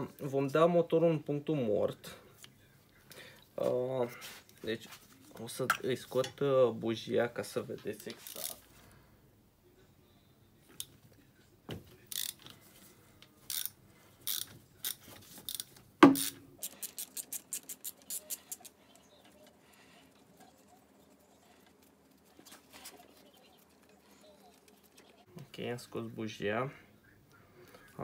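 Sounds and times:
ratchet wrench clicking: 0:12.1 - 0:12.4, 0:13.5 - 0:18.7.

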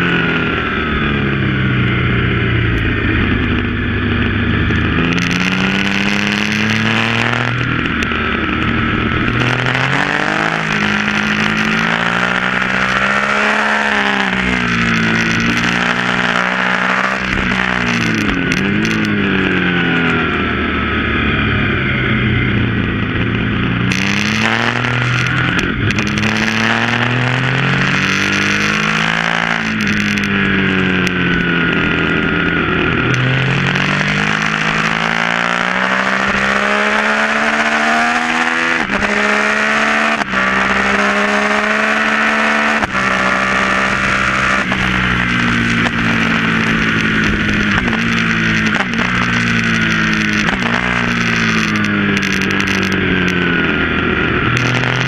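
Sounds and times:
motorcycle engine revving: 0:00.0 - 0:55.0
motorcycle upshifts: 0:00.0 - 0:55.0.

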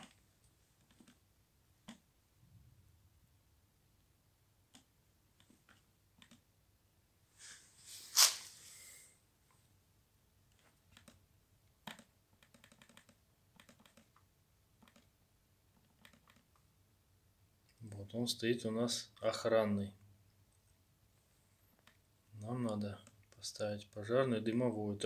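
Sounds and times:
laptop touchpad and key clicks: 0:11.8 - 0:14.2, 0:14.8 - 0:15.1, 0:15.8 - 0:16.6.

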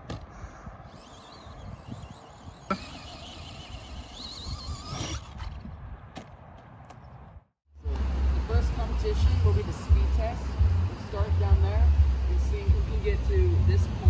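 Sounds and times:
electric motor whining: 0:00.8 - 0:05.6
noisy background: 0:07.8 - 0:14.0.

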